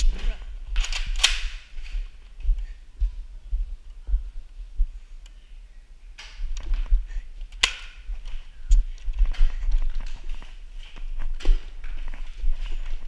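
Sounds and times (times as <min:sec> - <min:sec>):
footsteps and knocks on camera: 0:08.0 - 0:13.0.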